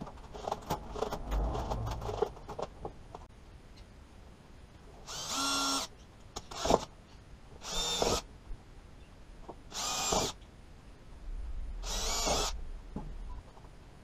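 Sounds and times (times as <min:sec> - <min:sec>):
cordless drill whining: 0:05.1 - 0:05.9, 0:07.6 - 0:08.2, 0:09.7 - 0:10.4, 0:11.8 - 0:12.6.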